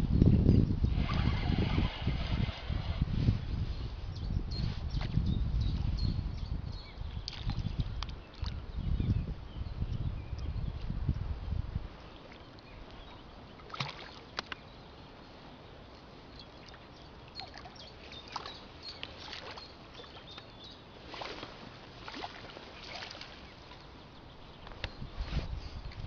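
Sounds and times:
fish splashing in shallow water: 0:12.2 - 0:14.6, 0:16.5 - 0:24.0.

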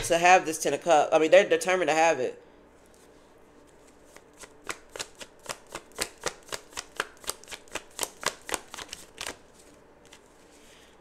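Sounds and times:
cards being shuffled: 0:02.8 - 0:10.8.

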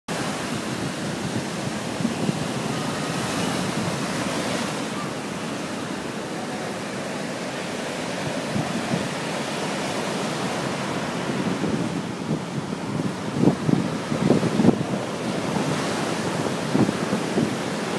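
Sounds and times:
waves breaking on shore: 0:00.1 - 0:17.9
wind buffeting microphone: 0:00.2 - 0:17.9.

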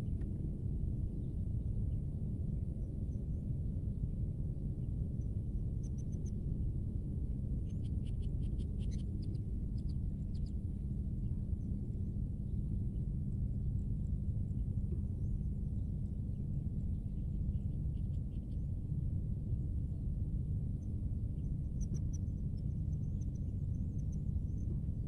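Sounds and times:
low outdoor rumble: 0:00.0 - 0:25.0
small animal chirping: 0:07.7 - 0:10.5.

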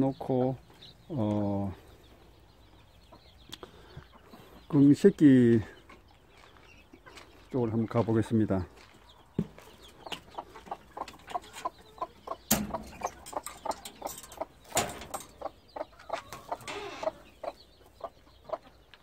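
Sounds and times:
chickens clucking: 0:00.0 - 0:19.0
sharp knocks: 0:12.5 - 0:13.2.

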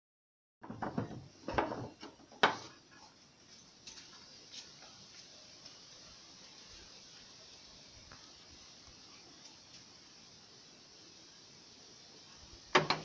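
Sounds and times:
sharp knocks and clatters: 0:00.6 - 0:02.7, 0:12.7 - 0:13.0
wind hissing in forest: 0:01.2 - 0:13.0.

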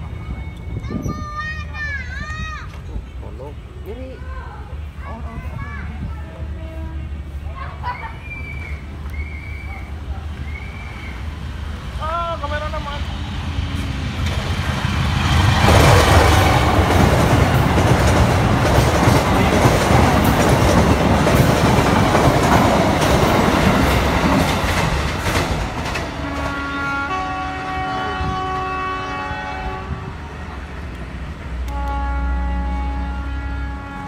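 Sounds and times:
train passing at speed: 0:00.0 - 0:34.0
wheels clattering over rail joints: 0:15.4 - 0:26.8.

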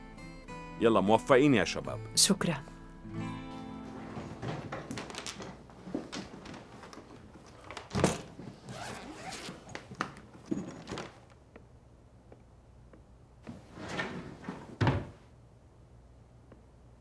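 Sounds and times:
cloth rustling: 0:03.8 - 0:11.3
zip being pulled: 0:08.6 - 0:09.8.

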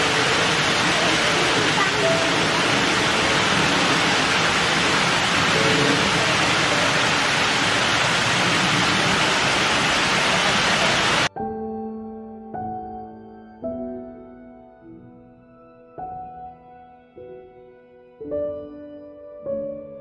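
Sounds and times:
waterfall rushing: 0:00.0 - 0:11.3
soft ambient music: 0:11.3 - 0:20.0.

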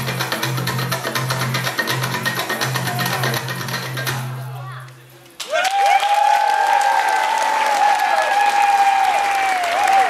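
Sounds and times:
audience clapping: 0:05.4 - 0:10.0.

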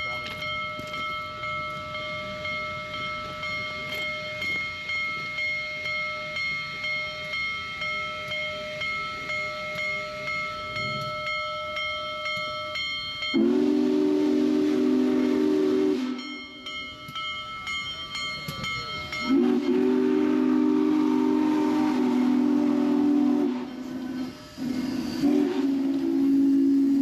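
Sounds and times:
steam locomotive whistle: 0:13.3 - 0:16.5, 0:19.2 - 0:27.0.

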